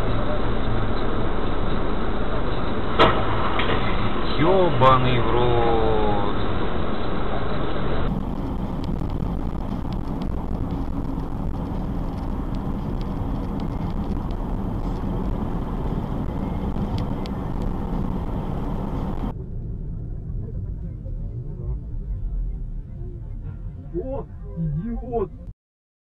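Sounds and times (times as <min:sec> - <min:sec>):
car engine and tyre noise: 0:00.0 - 0:25.5
dull street sound: 0:00.0 - 0:25.5.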